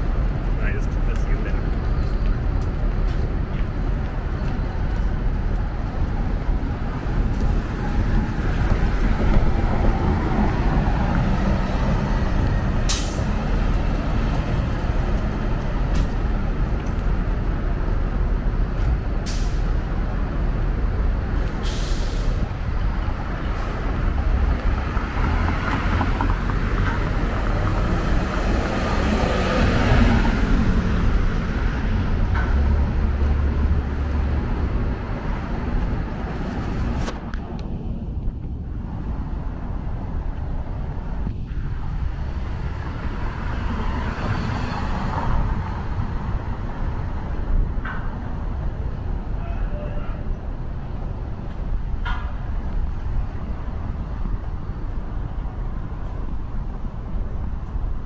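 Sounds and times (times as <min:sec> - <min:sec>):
vehicle passing: 0:00.0 - 0:17.6, 0:22.4 - 0:49.4
street traffic rumble: 0:00.0 - 0:58.0
bus air brakes hissing: 0:12.8 - 0:13.4, 0:19.2 - 0:19.8, 0:21.4 - 0:22.5.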